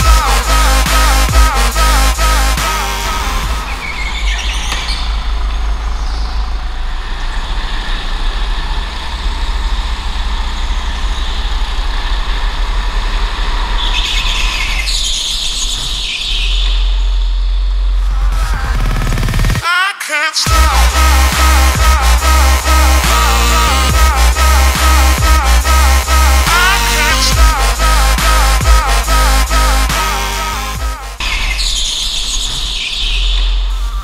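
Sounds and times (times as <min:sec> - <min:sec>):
go-kart engine rumble: 0:00.0 - 0:19.6, 0:20.5 - 0:32.5
tyres squealing: 0:00.0 - 0:19.6.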